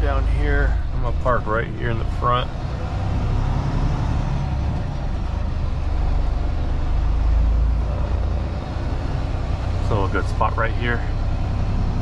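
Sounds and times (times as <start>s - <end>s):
truck diesel engine rumble: 0.0s - 12.0s.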